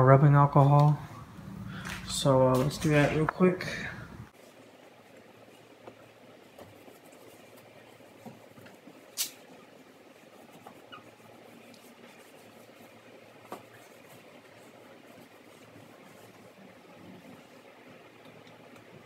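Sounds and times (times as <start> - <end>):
paper towel rubbing and squeaking: 5.4 - 18.2.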